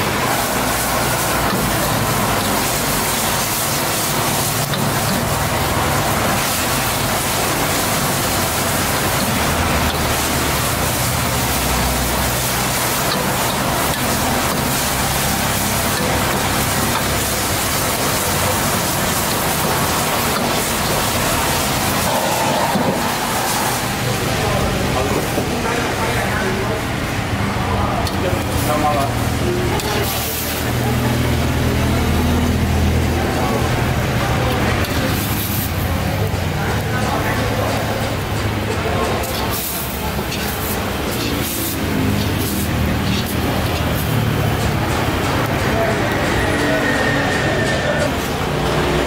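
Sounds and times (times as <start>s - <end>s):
food sizzling in a wok: 0.0s - 49.0s.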